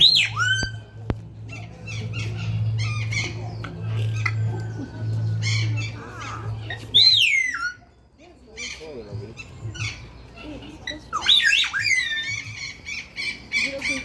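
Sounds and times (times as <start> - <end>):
cockatoo calls: 0.0 - 14.0.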